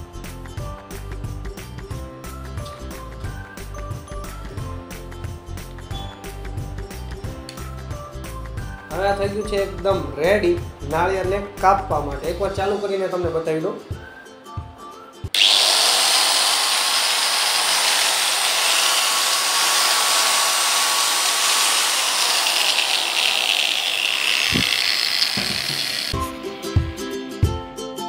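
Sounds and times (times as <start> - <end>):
angle grinder whining: 15.4 - 26.2.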